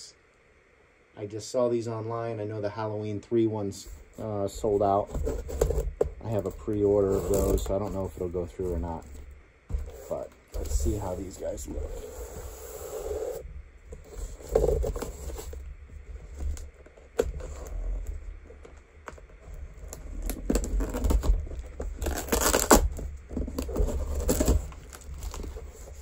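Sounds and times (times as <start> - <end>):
tape and cardboard tearing: 4.2 - 26.0
knife slitting packing tape: 22.0 - 22.9.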